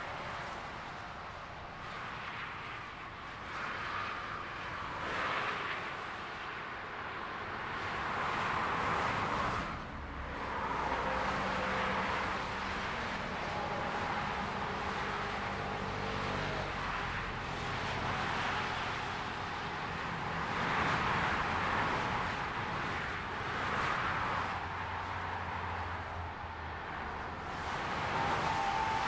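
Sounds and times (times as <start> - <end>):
vehicles passing at speed: 0.0 - 29.0.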